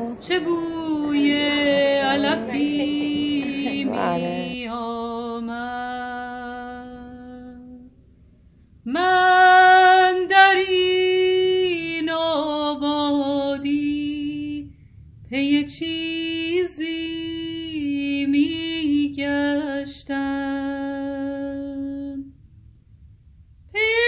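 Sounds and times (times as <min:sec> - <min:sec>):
person singing unaccompanied: 0:00.0 - 0:07.8.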